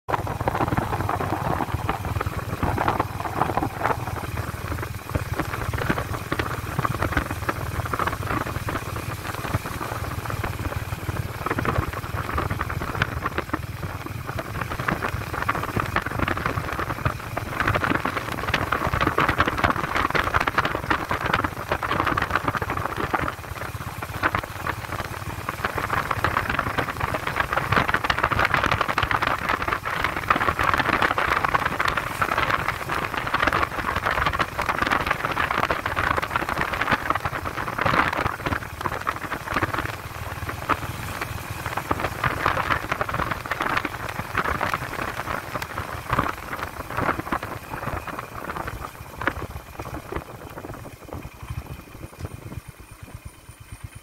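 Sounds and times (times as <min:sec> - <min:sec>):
motorcycle engine drone: 0:00.0 - 0:54.0.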